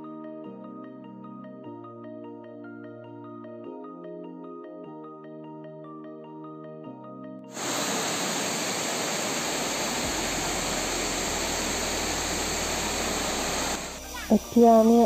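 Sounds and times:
waterfall rushing: 0:07.6 - 0:14.3
mallet background music: 0:13.9 - 0:15.0.

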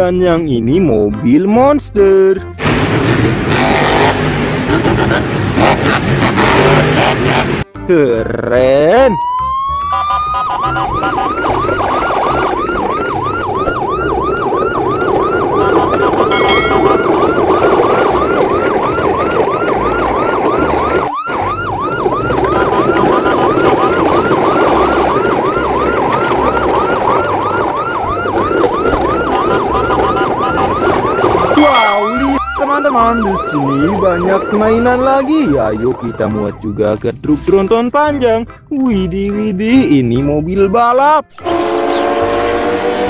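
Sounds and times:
emergency siren yelping: 0:08.8 - 0:37.0, 0:41.3 - 0:43.0.

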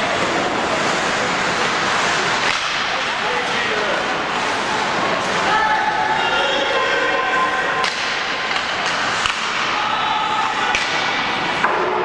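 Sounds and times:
hiss of play and spectators: 0:00.0 - 0:12.0
sharp clacks of hockey sticks: 0:01.6 - 0:03.6, 0:07.8 - 0:09.9, 0:10.7 - 0:12.0.

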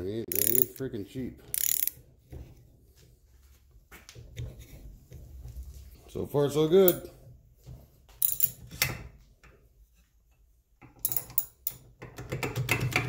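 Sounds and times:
hand reamer scraping metal: 0:00.3 - 0:00.8, 0:01.5 - 0:01.9.

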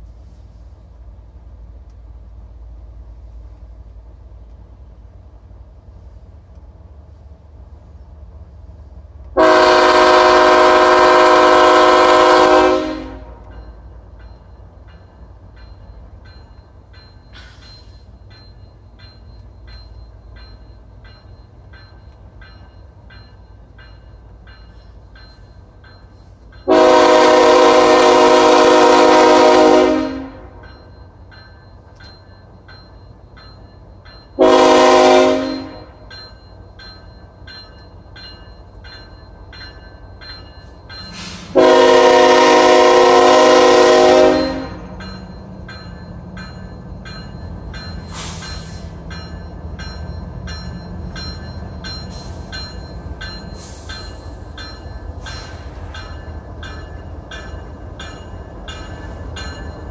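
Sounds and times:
diesel locomotive rumble: 0:00.0 - 0:59.9
locomotive horn blasts: 0:09.4 - 0:13.6, 0:26.7 - 0:30.6, 0:34.4 - 0:36.0, 0:41.5 - 0:44.9.

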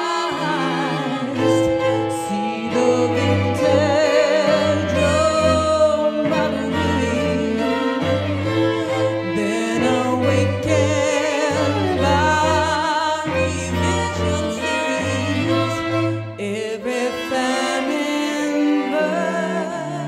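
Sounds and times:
bowed violin: 0:00.0 - 0:20.0
cello: 0:00.0 - 0:20.0
woman singing with vibrato: 0:00.0 - 0:20.0.

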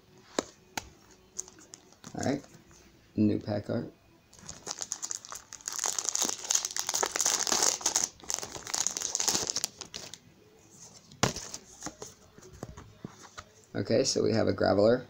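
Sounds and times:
foil wrapper crinkling: 0:04.4 - 0:10.2.

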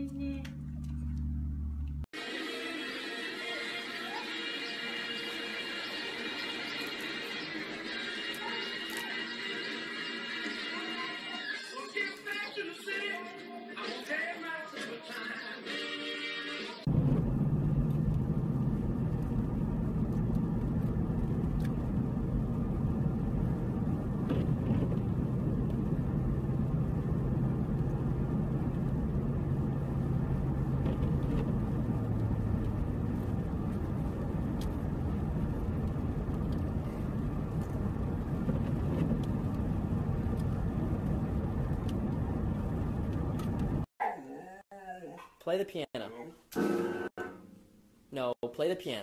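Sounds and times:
car engine and tyres rumbling: 0:00.0 - 0:02.1, 0:16.9 - 0:43.9.

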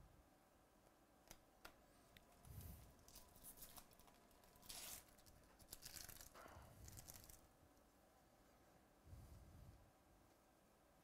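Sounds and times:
trading cards being handled: 0:01.6 - 0:07.5
card wrapper tearing open: 0:03.1 - 0:07.4.

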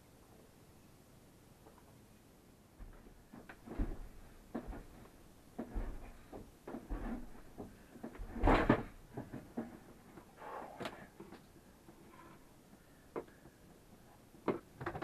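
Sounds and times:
hose knocking and rustling: 0:02.8 - 0:10.3.

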